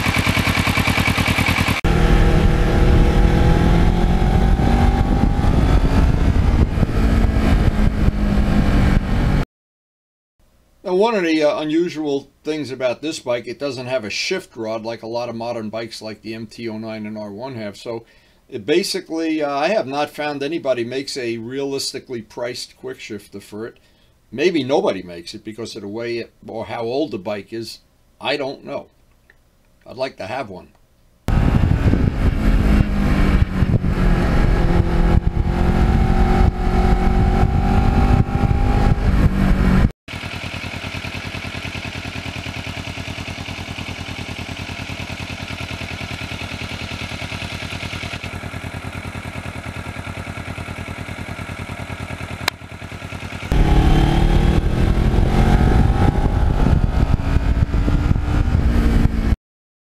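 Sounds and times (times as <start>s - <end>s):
motorcycle engine revving: 0.0s - 9.4s, 31.3s - 59.4s.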